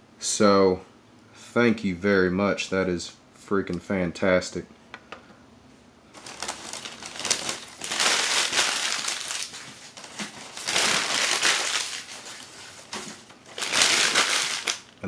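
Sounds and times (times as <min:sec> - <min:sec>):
newspaper rustling: 0:06.2 - 0:15.0.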